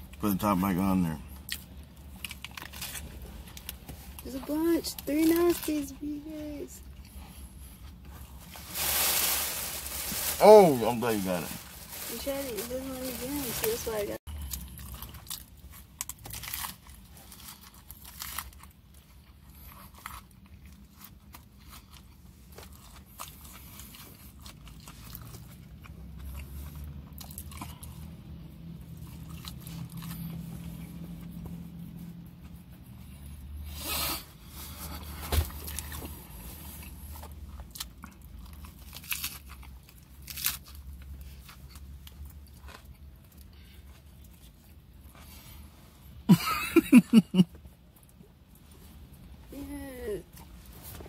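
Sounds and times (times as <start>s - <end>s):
man chewing and crunching: 0.0s - 4.2s, 14.3s - 32.8s, 34.5s - 45.7s.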